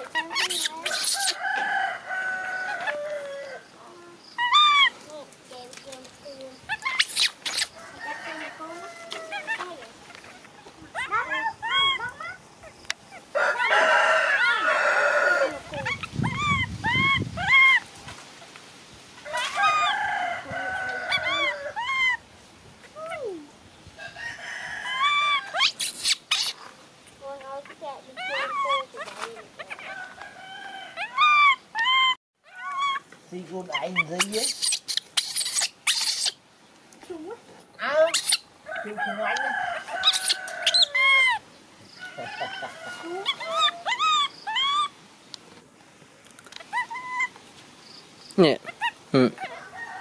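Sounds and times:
baby monkey calls: 0:00.0 - 0:01.6, 0:02.4 - 0:05.1, 0:06.6 - 0:07.8, 0:08.4 - 0:13.8, 0:14.4 - 0:17.9, 0:19.3 - 0:20.0, 0:20.6 - 0:23.5, 0:25.0 - 0:36.4, 0:37.8 - 0:45.0, 0:46.6 - 0:47.4
rooster crowing: 0:01.2 - 0:03.7, 0:07.8 - 0:09.5, 0:13.3 - 0:15.9, 0:19.2 - 0:22.2, 0:24.0 - 0:25.6, 0:29.7 - 0:32.8, 0:38.6 - 0:44.6, 0:49.4 - 0:50.0
rustling: 0:25.5 - 0:30.3.

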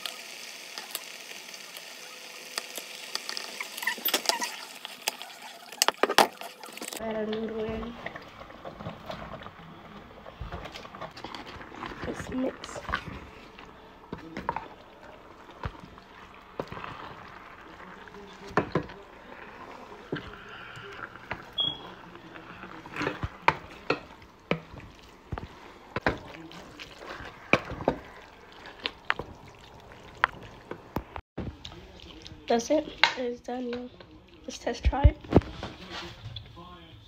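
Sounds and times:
wet squelching of noodles in sauce: 0:08.0 - 0:32.5.

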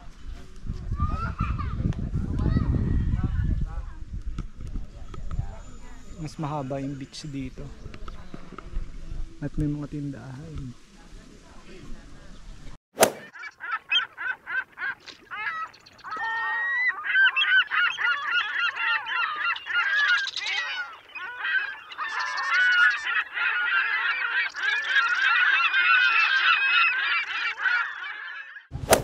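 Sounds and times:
geese honking: 0:13.2 - 0:28.7.

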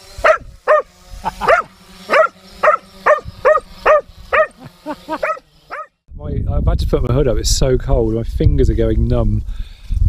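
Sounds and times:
dog yapping: 0:00.2 - 0:05.9.

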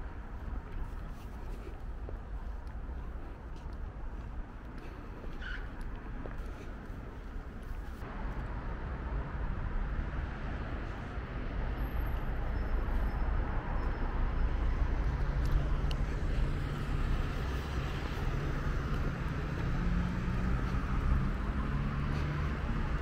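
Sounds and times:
road traffic rumble and tyre hiss: 0:00.0 - 0:23.0
bus engine hum: 0:05.9 - 0:23.0.

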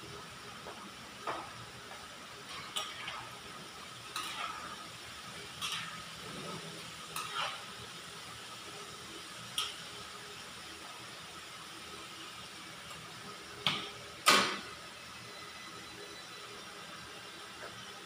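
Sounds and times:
chicken frying in oil: 0:00.0 - 0:15.1
metal utensil scraping a pan: 0:02.5 - 0:03.3, 0:04.1 - 0:04.9, 0:05.5 - 0:07.7.

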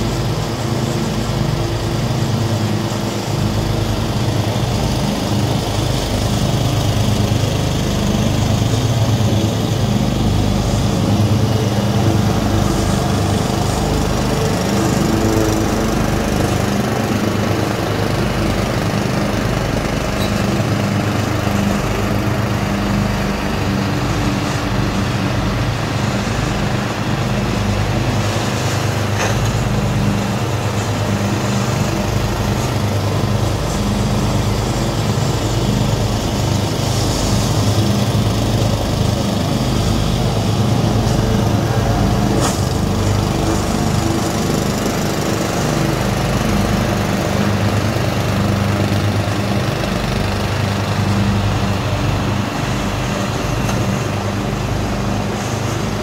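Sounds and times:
riding mower engines running: 0:00.0 - 0:56.0.

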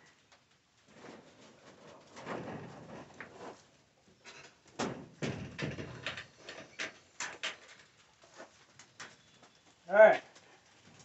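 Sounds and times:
sharp knocks and rattles: 0:04.2 - 0:07.9.

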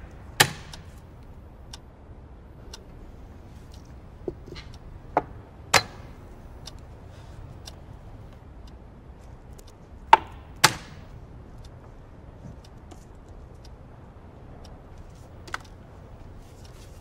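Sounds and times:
faint clock tick: 0:06.4 - 0:10.1, 0:11.0 - 0:17.0.

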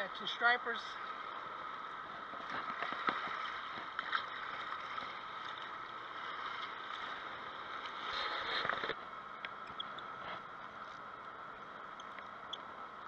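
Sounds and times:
river water lapping over rocks: 0:00.2 - 0:09.6.

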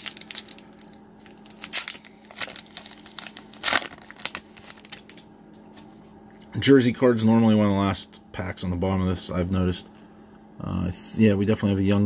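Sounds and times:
foil wrapper crinkling and tearing: 0:00.0 - 0:05.3.

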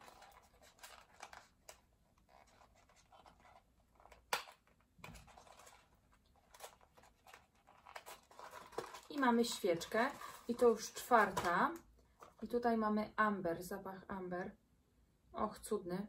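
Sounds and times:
cardboard box scratching and rustling: 0:06.5 - 0:09.1.

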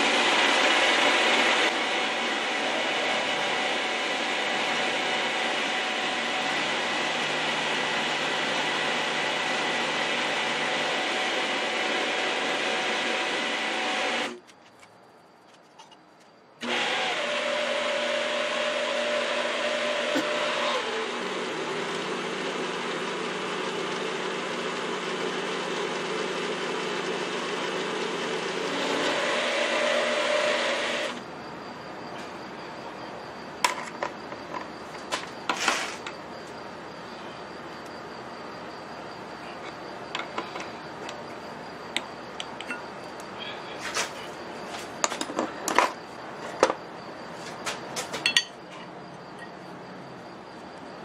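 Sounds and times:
milling machine cutting metal: 0:00.0 - 0:14.4, 0:16.6 - 0:24.0, 0:28.0 - 0:31.3.

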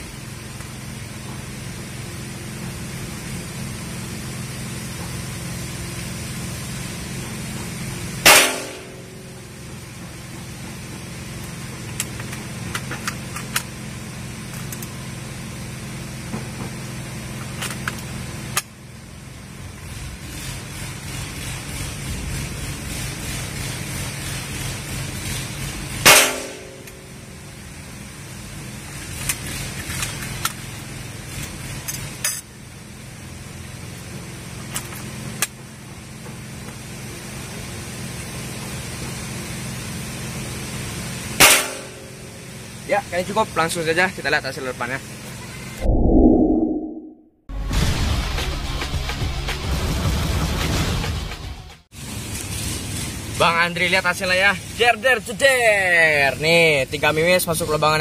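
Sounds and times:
low engine-like hum: 0:00.0 - 0:47.3
air rifle shot: 0:08.3 - 0:09.0.

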